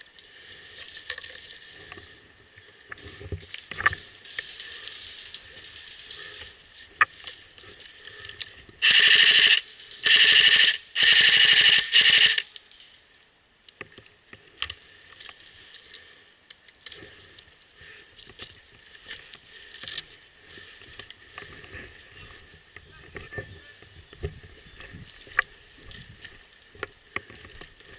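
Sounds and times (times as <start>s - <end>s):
airsoft rifle full-auto bursts: 8.8s - 12.5s.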